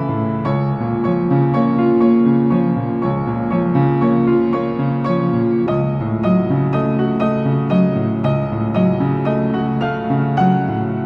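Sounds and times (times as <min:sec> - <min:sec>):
piano background music: 0:00.0 - 0:11.0.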